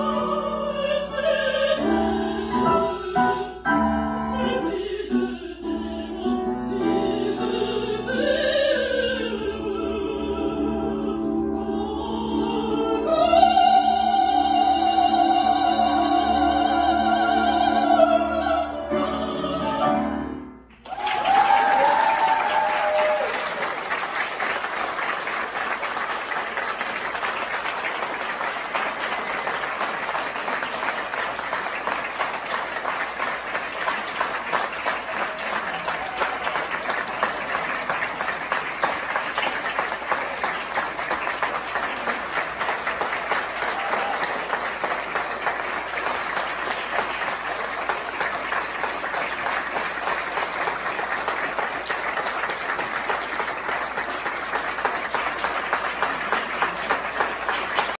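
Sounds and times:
audience applauding: 0:20.7 - 0:58.0.

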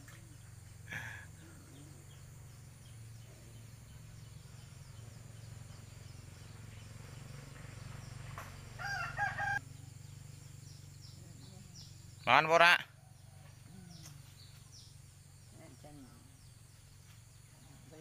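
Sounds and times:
low hum: 0:00.0 - 0:12.2
insects buzzing: 0:00.0 - 0:18.0
rooster crowing: 0:08.8 - 0:09.6.

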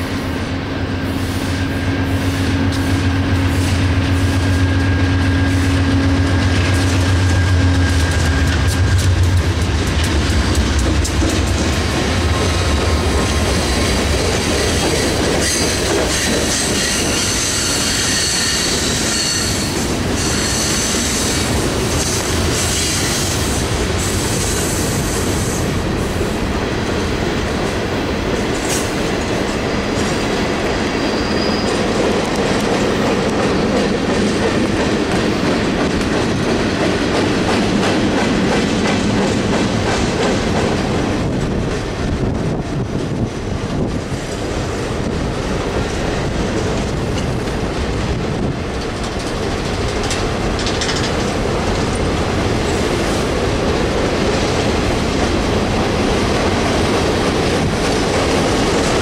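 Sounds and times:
train wheels rumbling on rails: 0:00.0 - 0:59.0
wheels clacking over rail joints: 0:05.6 - 0:24.1, 0:45.5 - 0:52.9.

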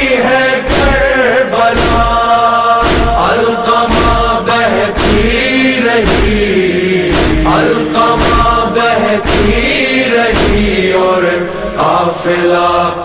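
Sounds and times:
man singing a lament: 0:00.0 - 0:13.0
deep steady beat: 0:01.8 - 0:11.2.

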